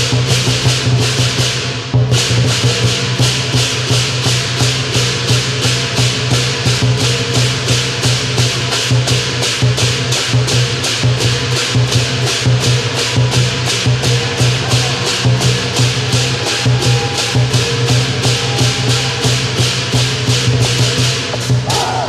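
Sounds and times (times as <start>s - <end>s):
drums and cymbals fast beat: 0.0s - 22.0s.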